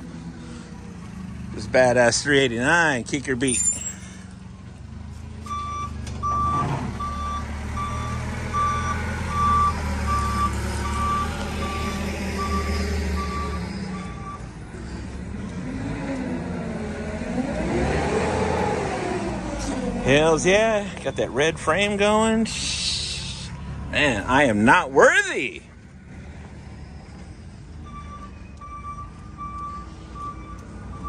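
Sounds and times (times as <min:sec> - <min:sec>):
truck diesel engine rumble: 0:00.0 - 0:31.0
vehicle backup alarm beeping: 0:05.4 - 0:14.6, 0:26.7 - 0:31.0.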